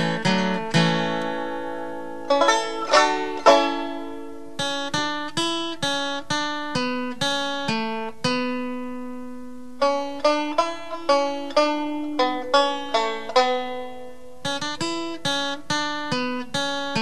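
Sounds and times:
plucked string instrument music: 0.0s - 17.0s.

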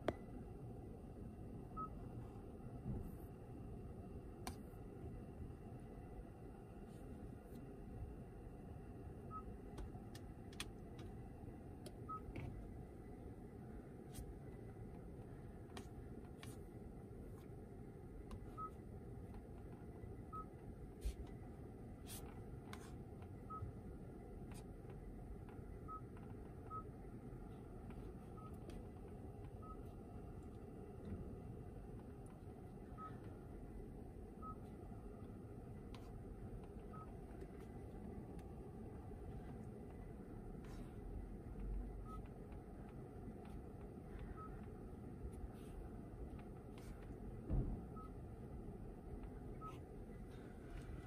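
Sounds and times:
low room hum: 0.0s - 51.0s
soft knock: 47.5s - 47.8s.

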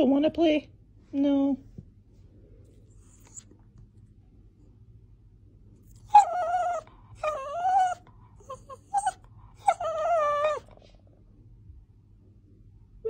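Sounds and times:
small dog whining: 3.1s - 3.5s, 5.9s - 10.8s.

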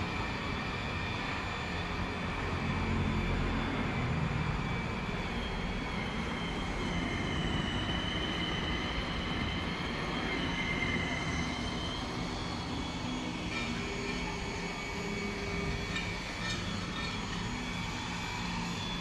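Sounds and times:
high wavering whine: 0.0s - 19.0s
mechanical hum: 13.0s - 19.0s.

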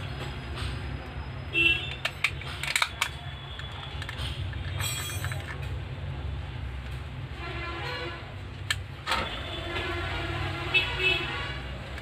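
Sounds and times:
plastic clicks and snaps: 1.9s - 5.8s, 8.6s - 8.9s.

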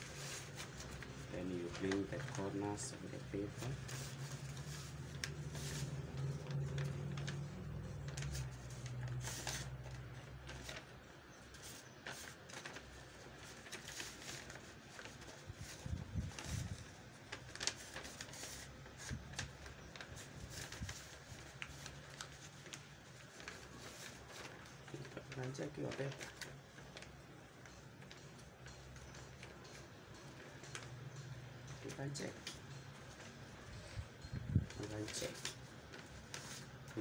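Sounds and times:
paper bag rustling and crackling: 0.0s - 31.0s, 31.6s - 37.0s.

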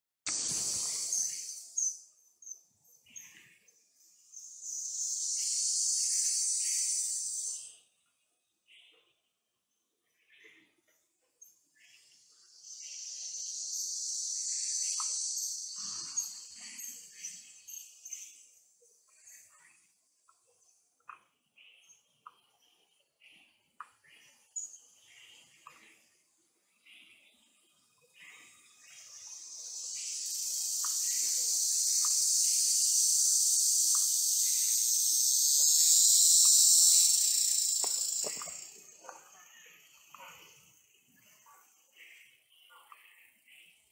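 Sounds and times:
insects droning: 0.3s - 8.0s, 11.4s - 19.8s, 26.7s - 42.7s.

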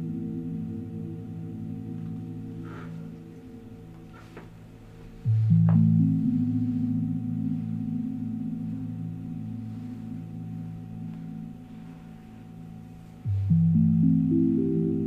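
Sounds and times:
low gong-like ringing chord: 0.0s - 15.0s.

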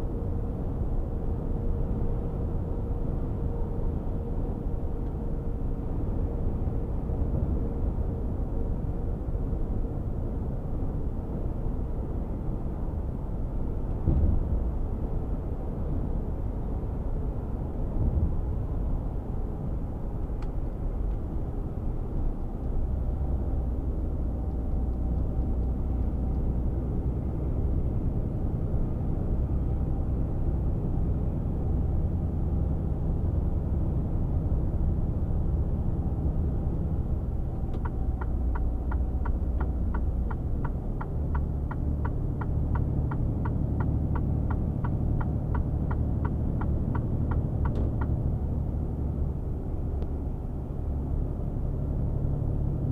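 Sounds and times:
diesel engine drone: 0.0s - 52.9s
road noise: 0.0s - 52.9s
turn signal ticking: 37.7s - 48.4s.

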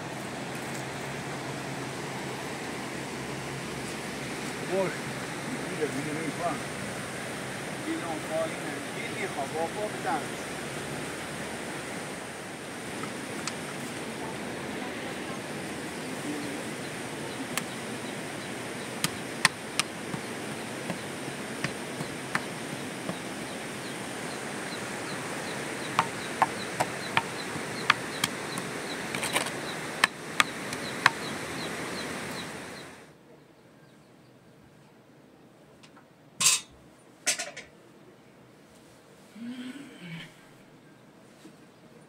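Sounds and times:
rain hissing: 0.0s - 33.0s
faint insect chirping: 12.4s - 33.0s.

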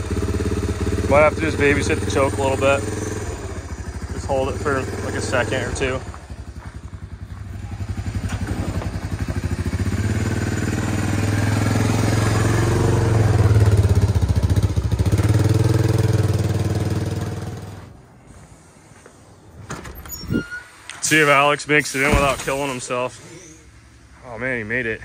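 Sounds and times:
single-cylinder engine running: 0.0s - 17.9s.

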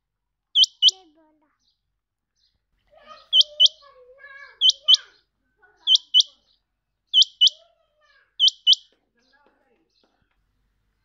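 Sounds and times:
quail calling: 0.6s - 1.0s, 3.2s - 3.9s, 4.5s - 5.1s, 5.8s - 6.4s, 7.2s - 7.7s, 8.4s - 8.9s.

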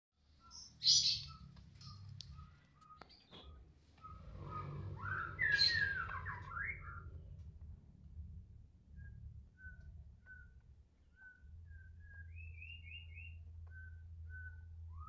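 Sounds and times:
songbird calling and singing: 0.2s - 7.2s, 8.9s - 15.0s.

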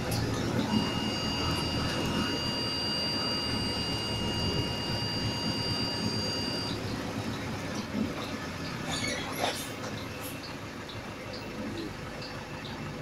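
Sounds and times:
high-pitched whine: 0.0s - 7.9s
bus engine rumbling: 0.0s - 13.0s.

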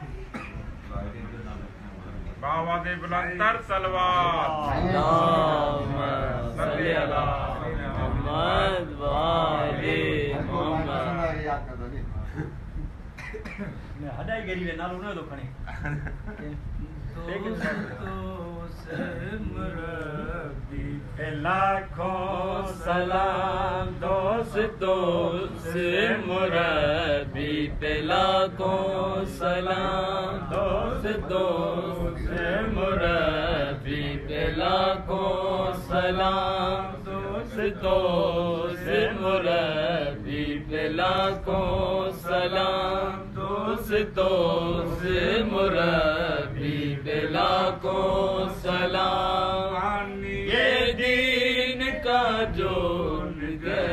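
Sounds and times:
man chanting: 17.2s - 53.9s.

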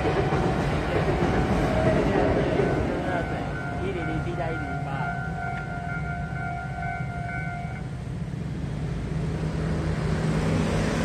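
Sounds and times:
level crossing warning tone: 1.1s - 7.9s
scooters and cars moving off: 8.3s - 11.0s.

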